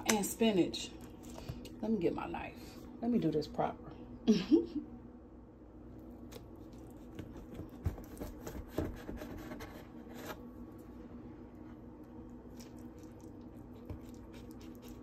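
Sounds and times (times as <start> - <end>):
knife sawing through pizza crust: 7.4 - 10.4, 13.8 - 15.0.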